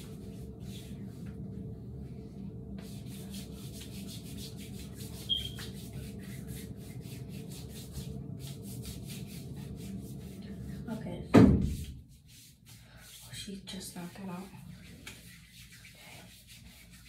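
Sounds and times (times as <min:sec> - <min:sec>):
steady low hum: 0:00.0 - 0:17.0
hands rubbing lotion into skin: 0:02.8 - 0:09.9, 0:14.8 - 0:17.0
brief squeak: 0:05.3 - 0:05.6.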